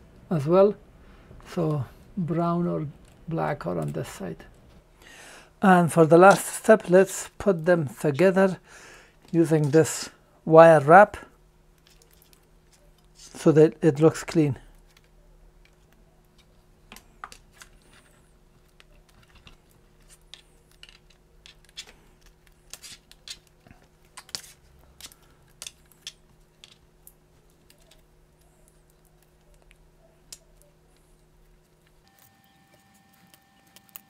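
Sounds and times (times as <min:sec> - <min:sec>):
steady low hum: 0:00.0 - 0:34.0
plastic clicks and rustles: 0:14.3 - 0:32.1.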